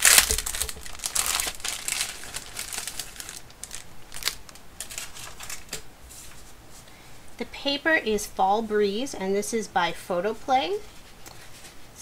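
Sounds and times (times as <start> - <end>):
plastic packaging crinkling: 0.0 - 5.8.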